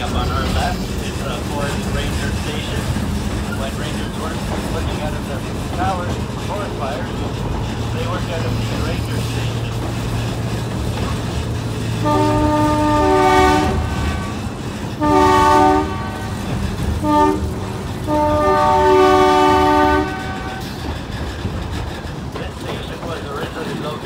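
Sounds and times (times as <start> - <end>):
train running rumble: 0.0 - 24.0
train horn chord blasts: 12.0 - 20.7.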